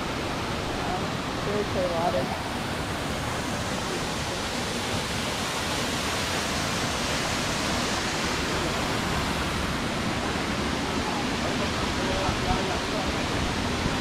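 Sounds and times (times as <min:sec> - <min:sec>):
waterfall rushing into pool: 0:00.0 - 0:14.0.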